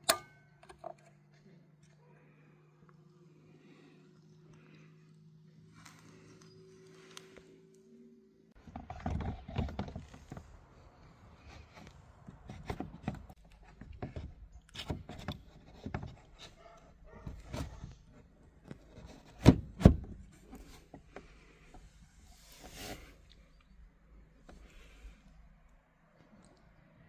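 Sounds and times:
plastic parts knocking and scraping: 8.6 - 21.9.

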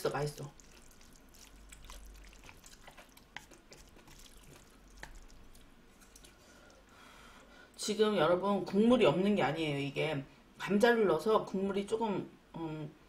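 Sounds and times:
chopsticks stirring noodles: 0.0 - 6.8.

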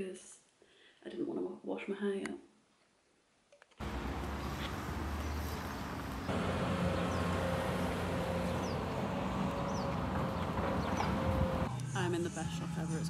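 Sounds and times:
background rush: 3.8 - 11.7
bird chirps: 4.2 - 11.6.

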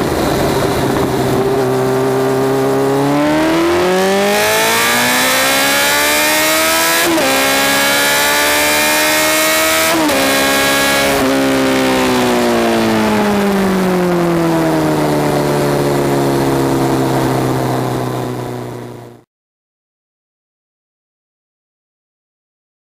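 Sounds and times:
motorcycle engine revving with upshifts: 0.0 - 19.2.

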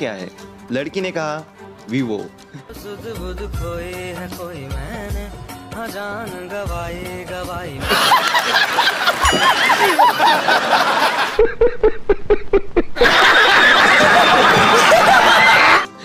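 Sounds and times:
crowd clapping: 7.8 - 11.4, 13.0 - 15.9
man laughing: 7.8 - 15.9
crowd laughing: 7.8 - 16.0.

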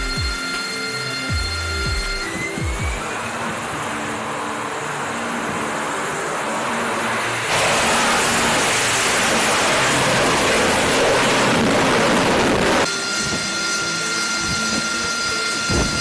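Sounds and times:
jet engine roar: 0.0 - 16.0.

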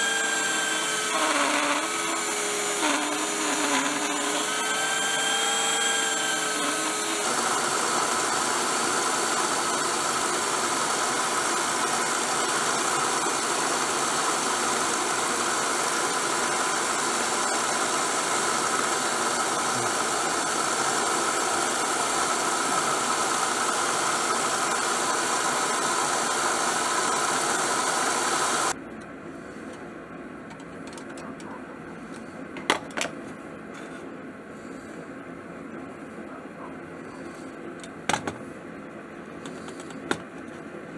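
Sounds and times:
blade grinding on belt sander: 0.0 - 28.8
sander motor hum: 0.0 - 28.8.

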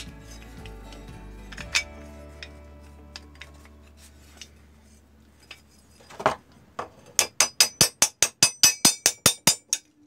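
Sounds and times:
hammer striking metal: 7.2 - 9.9.

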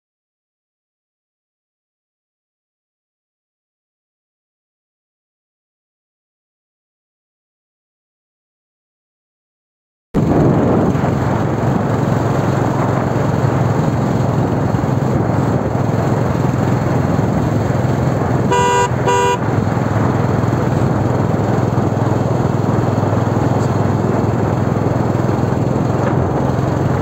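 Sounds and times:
vehicle engine and road noise: 10.2 - 27.0
vehicle horn toots: 18.5 - 19.5.

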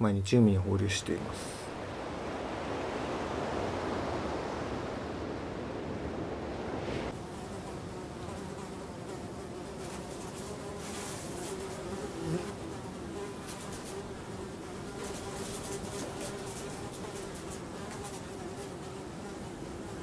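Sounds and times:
surf washing on beach: 1.2 - 7.9
flies buzzing: 1.6 - 20.0.

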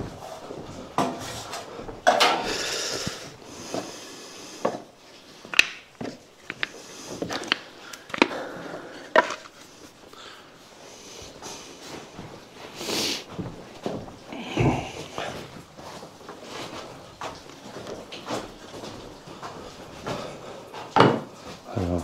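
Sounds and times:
rustling hiss: 0.0 - 5.6, 6.2 - 17.1.

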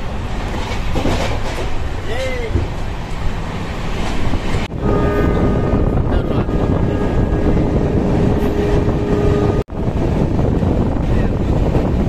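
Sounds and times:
train wheels rumbling on track: 0.0 - 12.0
wind on microphone: 4.0 - 12.0.

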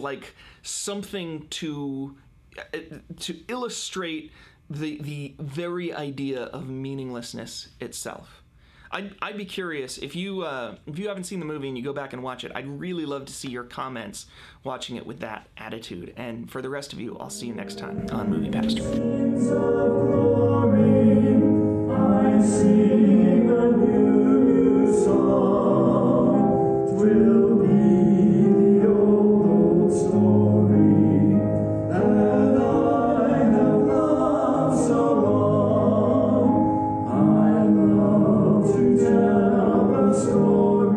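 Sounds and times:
choral music: 17.1 - 40.9
low bass note: 17.4 - 19.2.

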